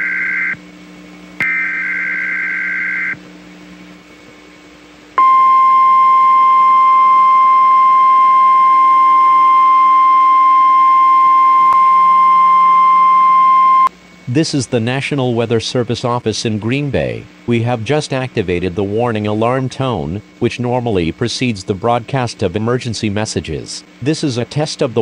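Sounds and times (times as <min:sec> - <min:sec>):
steady warning alarm tone: 0:00.0 - 0:00.7, 0:01.4 - 0:03.2, 0:05.2 - 0:13.9.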